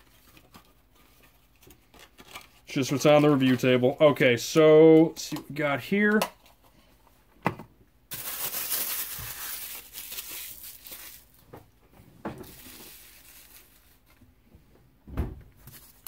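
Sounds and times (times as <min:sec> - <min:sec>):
plastic packaging crinkling: 0:08.1 - 0:11.5, 0:12.4 - 0:14.2.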